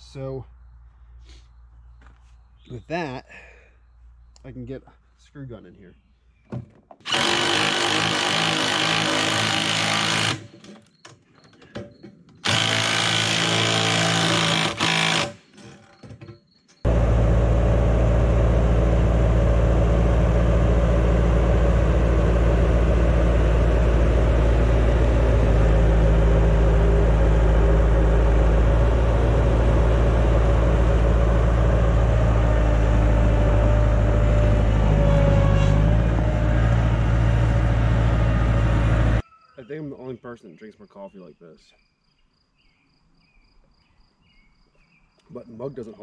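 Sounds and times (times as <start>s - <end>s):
loader diesel engine running: 16.8s - 39.2s.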